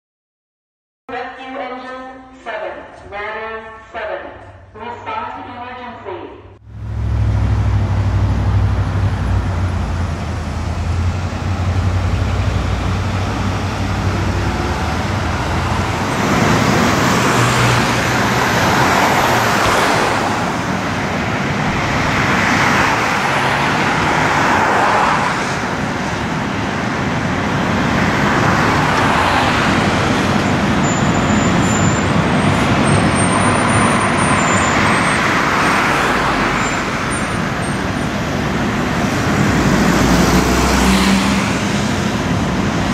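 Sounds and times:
heavy low engine rumble: 6.6s - 19.3s
vehicles passing: 6.6s - 42.9s.

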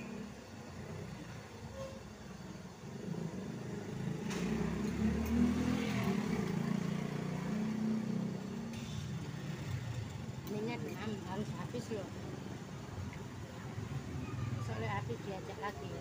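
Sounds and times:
vehicle engine passing by: 3.7s - 10.0s.

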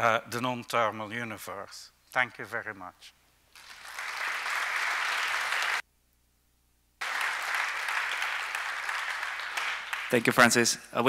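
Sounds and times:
audience applauding: 3.6s - 5.8s, 7.0s - 10.7s.

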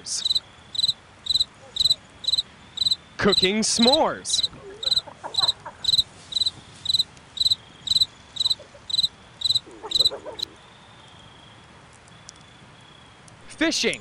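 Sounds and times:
cricket chirping: 0.0s - 10.6s.

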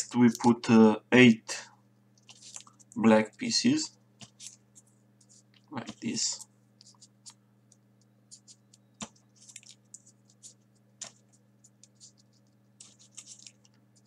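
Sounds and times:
steady low hum: 0.0s - 14.0s
paper clicks and rustles: 2.2s - 3.5s, 4.2s - 14.0s.

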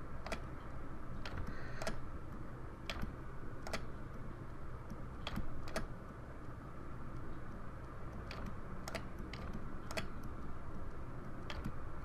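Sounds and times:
low steady hum: 0.0s - 12.0s
mouse and keyboard clicks: 0.2s - 0.5s, 1.2s - 4.0s, 4.8s - 5.9s, 7.2s - 11.8s.

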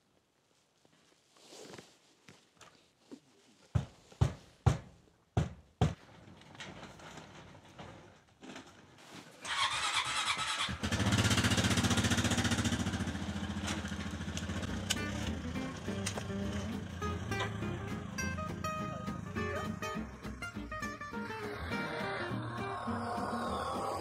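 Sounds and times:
starter motor cranking: 9.4s - 17.6s
engine idling: 9.5s - 24.0s.

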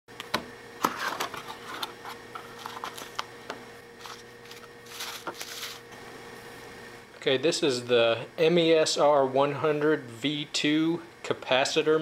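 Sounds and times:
plastic packaging crinkling: 4.0s - 5.9s.

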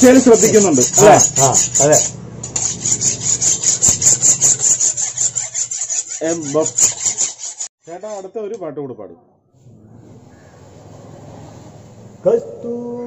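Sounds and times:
file rasping over workpiece: 0.0s - 8.3s.

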